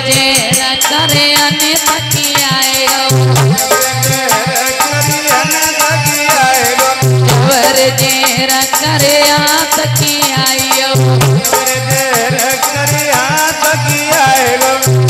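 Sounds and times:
folk dance music: 0.0s - 15.0s
hand drum beat: 0.0s - 15.0s
jingling rattle percussion: 0.0s - 15.0s.

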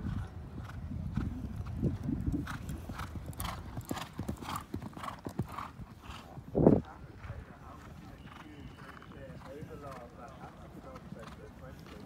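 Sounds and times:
horse hoofbeats on sand: 0.1s - 6.3s.

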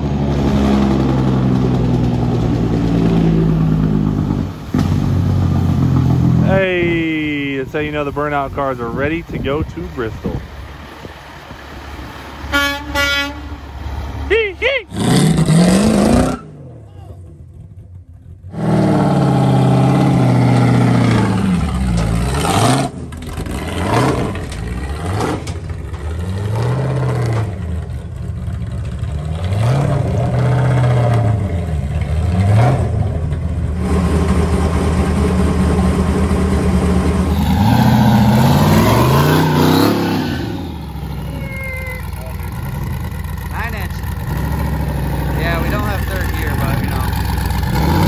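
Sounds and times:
car engine revving: 13.9s - 48.0s.

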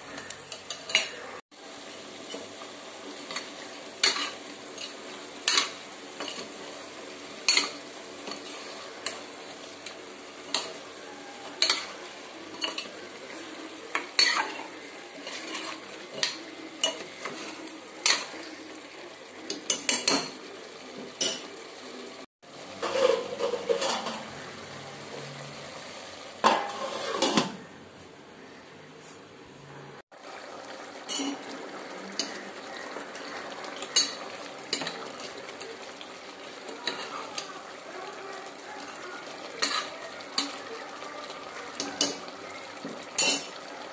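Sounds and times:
frying sizzle: 0.0s - 28.2s, 30.1s - 43.9s
metal spoon scraping a pot: 13.9s - 18.3s, 22.8s - 24.4s, 26.4s - 27.6s.

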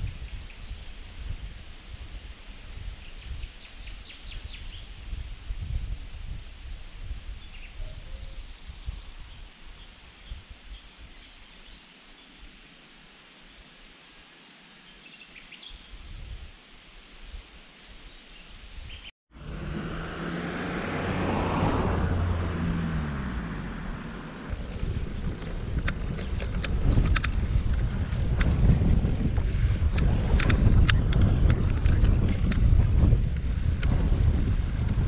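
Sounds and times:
wind buffeting microphone: 0.0s - 11.8s, 15.7s - 16.6s, 18.7s - 35.0s
sharp clicks: 25.8s - 27.4s, 29.9s - 32.6s.

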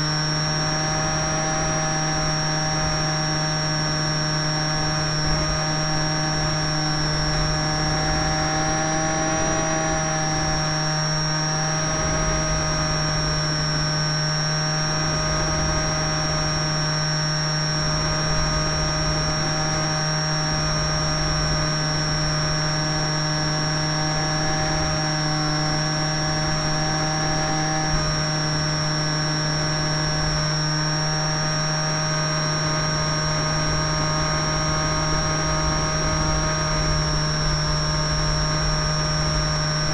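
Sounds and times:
model airplane motor whining drone: 0.0s - 39.9s.

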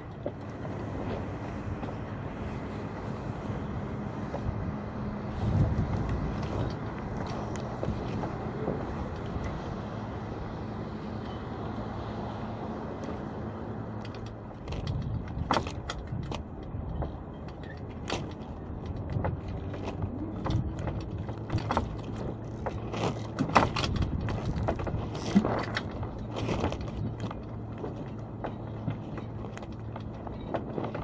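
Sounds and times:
rigging clicking and knocking: 14.0s - 31.0s.

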